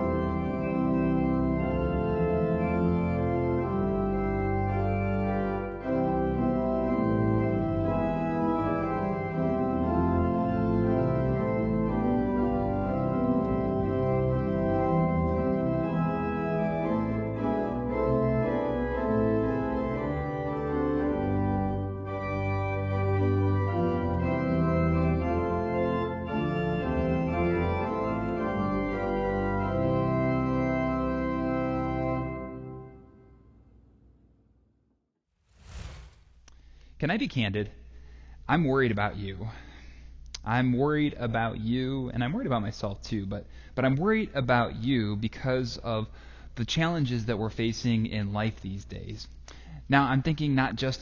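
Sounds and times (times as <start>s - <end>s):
pipe organ chords: 0.0s - 33.8s.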